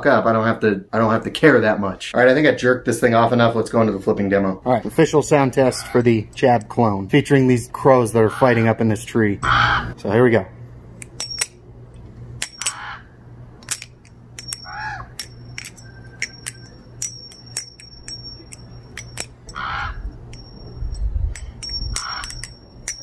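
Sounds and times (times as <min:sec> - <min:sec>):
crows cawing: 0:05.7 - 0:06.0, 0:09.4 - 0:10.0, 0:12.7 - 0:13.1, 0:14.7 - 0:15.2, 0:19.5 - 0:20.0, 0:22.0 - 0:22.2
butterfly knife metallic clicks: 0:11.0 - 0:12.8, 0:13.6 - 0:23.0.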